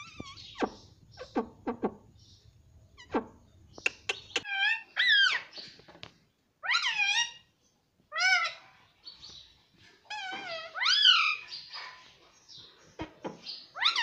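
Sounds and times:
parrot calling: 0.0s - 1.6s, 2.9s - 5.5s, 6.6s - 7.5s, 8.1s - 8.8s.

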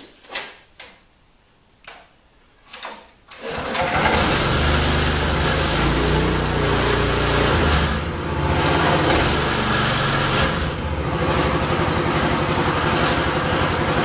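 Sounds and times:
small engine starting and running: 3.4s - 14.0s.

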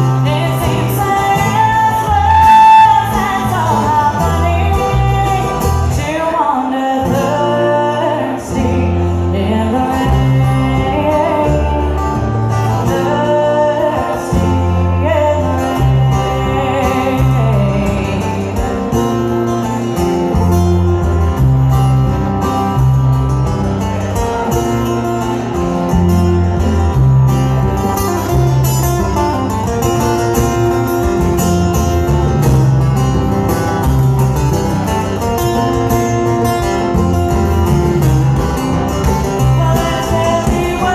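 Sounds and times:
plucked upright bass: 0.0s - 6.3s, 7.0s - 40.9s
person singing: 0.0s - 19.2s, 38.6s - 40.9s
bluegrass band playing: 0.0s - 40.9s
strummed acoustic guitar: 0.0s - 40.9s.

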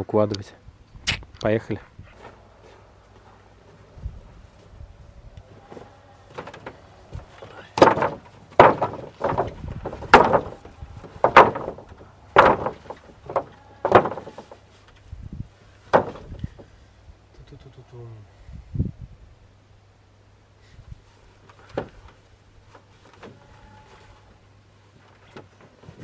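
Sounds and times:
wooden boards clacking on stack: 5.7s - 15.0s, 15.8s - 16.7s, 21.4s - 22.2s.

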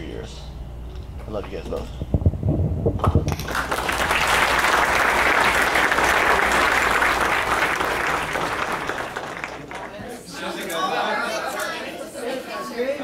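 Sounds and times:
thumps: 1.5s - 3.6s
people applauding: 3.3s - 10.0s.

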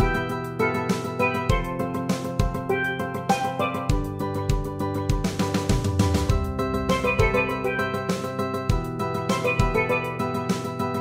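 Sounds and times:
melody of short pitched notes: 0.0s - 4.5s, 6.3s - 10.5s
drum beat: 0.9s - 10.1s.

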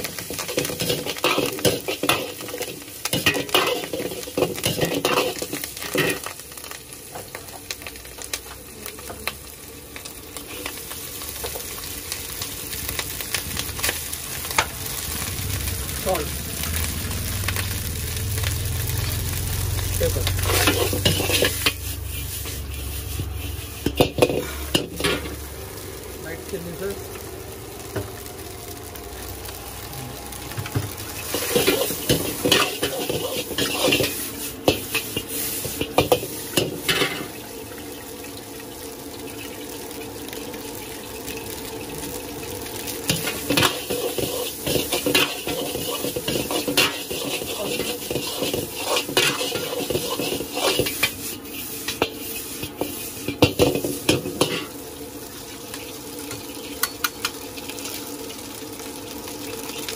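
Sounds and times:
low steady sizzle: 0.0s - 59.9s
steel ladle scraping iron pan: 20.4s - 25.3s, 31.3s - 37.3s, 43.1s - 54.7s.

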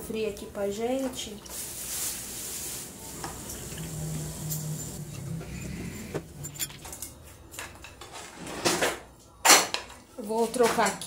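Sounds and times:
tableware clicks and knocks: 6.0s - 10.0s.

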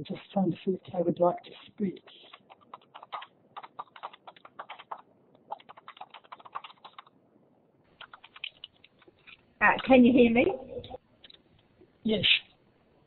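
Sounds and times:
typing on computer keyboard: 2.0s - 7.1s, 8.0s - 9.4s.

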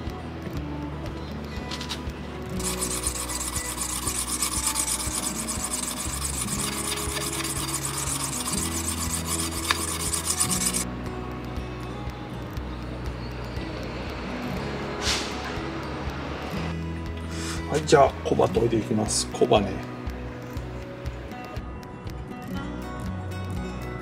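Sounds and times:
blade rubbed on wet whetstone: 2.6s - 10.8s.

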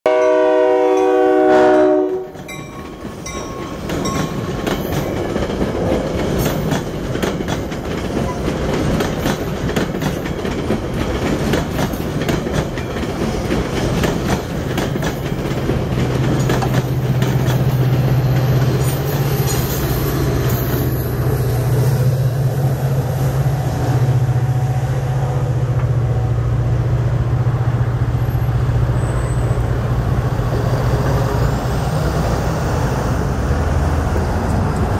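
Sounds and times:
train horn: 0.0s - 2.4s, 22.6s - 26.9s
train wheels clattering over rails: 2.1s - 22.6s.

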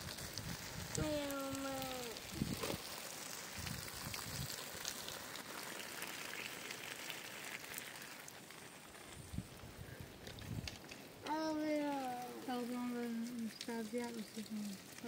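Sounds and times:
light rain on plants: 0.0s - 15.0s
raindrop ticks: 0.0s - 15.0s.

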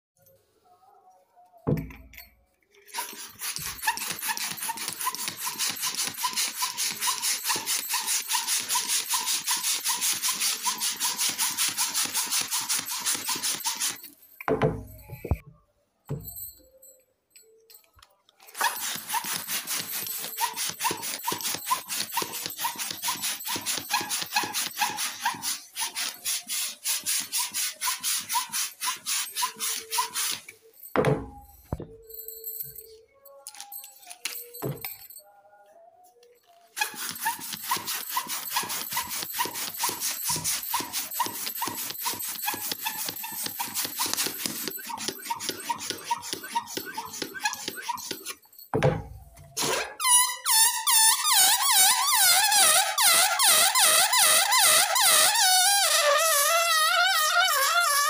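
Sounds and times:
hand balloon pump strokes: 2.8s - 14.2s, 18.4s - 30.6s, 36.5s - 48.6s, 49.5s - 58.0s.

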